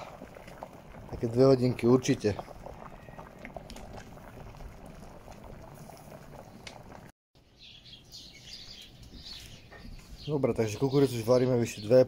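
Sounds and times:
water boiling and bubbling: 0.0 - 7.1
small birds chirping: 7.4 - 12.0.

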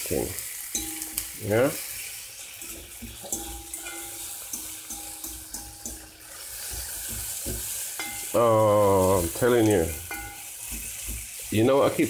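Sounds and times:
vegetables sizzling in a frying pan: 0.0 - 12.0
spatula scraping a pan: 0.7 - 12.0.

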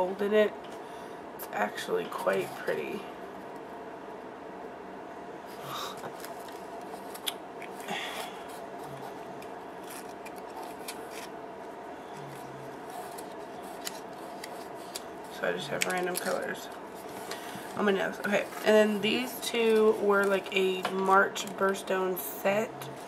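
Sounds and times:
steady hum: 0.0 - 23.0
paper shred rustling: 5.7 - 11.4, 12.2 - 21.9.

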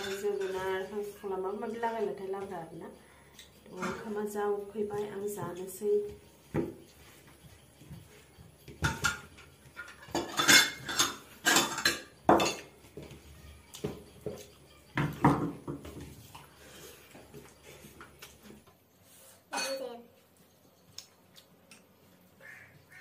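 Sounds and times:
dishes and spoon clinking: 0.0 - 1.1, 6.4 - 18.1, 19.5 - 21.0.

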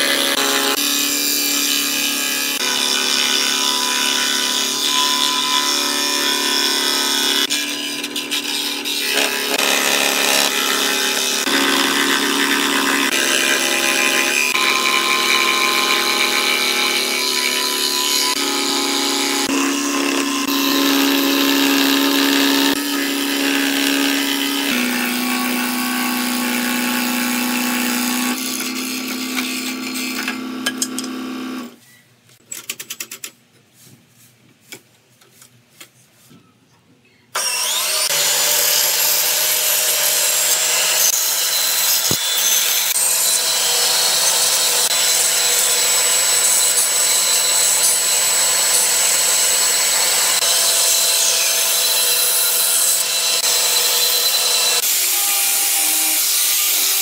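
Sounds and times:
band saw cutting wood: 0.0 - 31.8, 37.4 - 57.0
scroll saw humming: 7.4 - 31.8.

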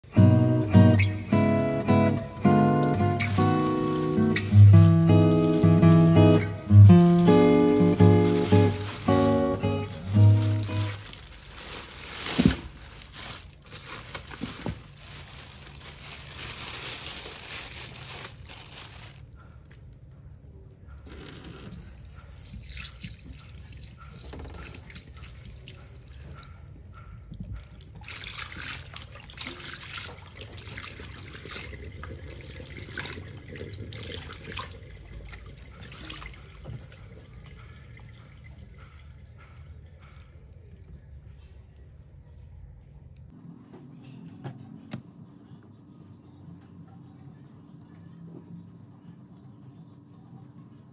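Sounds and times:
dripping liquid: 0.6 - 19.0, 21.0 - 42.5
plastic rustling: 1.9 - 19.8
chicken emptied into steel sink: 2.4 - 18.5.

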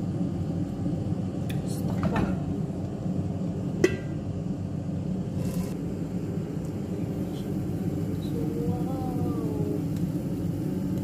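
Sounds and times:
steady low rumble: 0.0 - 11.0
metal lid clanking on pan: 3.8 - 4.2.

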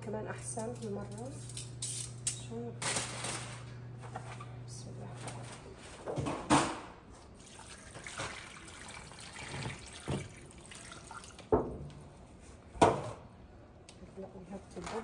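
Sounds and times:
cooking juices pouring and dripping: 7.2 - 11.5.

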